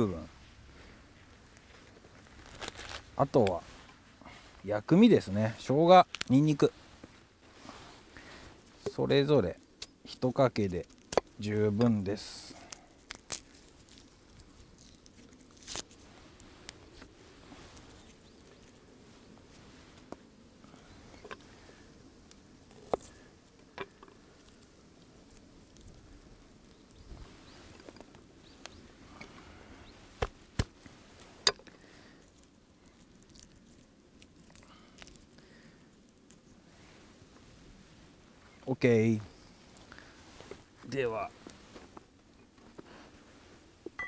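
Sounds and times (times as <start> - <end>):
garlic skin rustling: 0.5 - 4.7, 5.3 - 21.8, 22.4 - 36.7.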